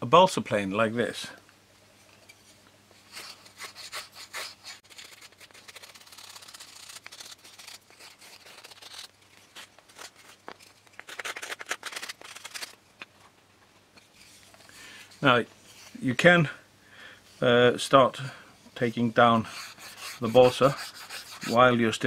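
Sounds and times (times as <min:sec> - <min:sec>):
plane shaving wood: 0:19.4 - 0:21.7.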